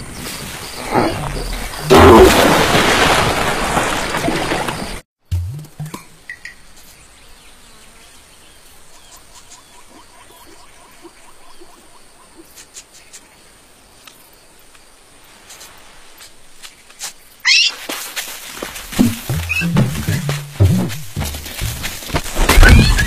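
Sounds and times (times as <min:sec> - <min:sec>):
insects chirping: 0:00.0 - 0:05.0, 0:06.2 - 0:23.0.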